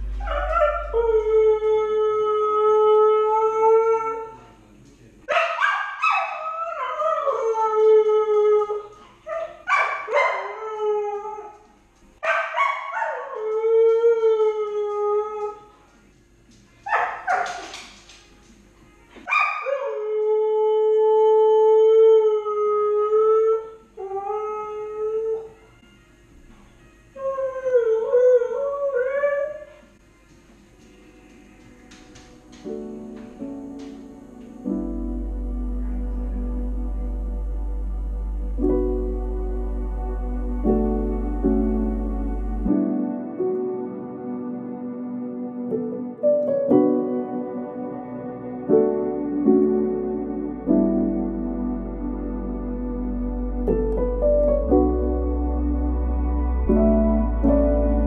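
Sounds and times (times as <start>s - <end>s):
dog howling: 0.0s - 4.5s, 5.3s - 11.6s, 19.2s - 26.0s.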